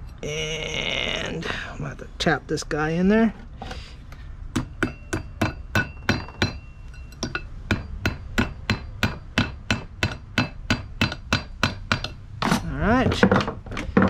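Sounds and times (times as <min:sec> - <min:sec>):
hammer tapping metal pin: 0:04.5 - 0:13.9.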